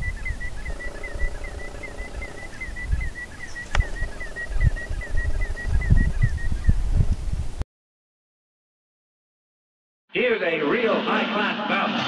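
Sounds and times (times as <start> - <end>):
snipe rhythmic song: 0.0 - 6.1
wind rumble on microphone: 0.0 - 7.6.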